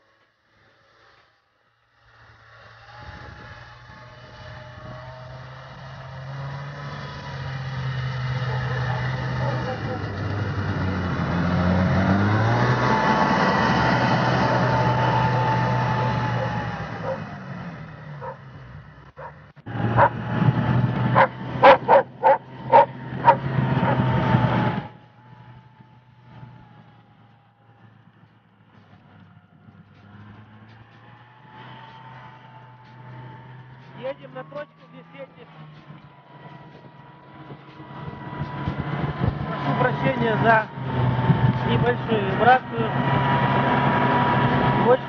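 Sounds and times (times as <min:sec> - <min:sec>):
snowmobile engine running: 0:00.7 - 0:45.0
dog barking: 0:08.2 - 0:10.0, 0:16.0 - 0:17.3, 0:18.2 - 0:18.5, 0:19.2 - 0:20.2, 0:21.2 - 0:24.1.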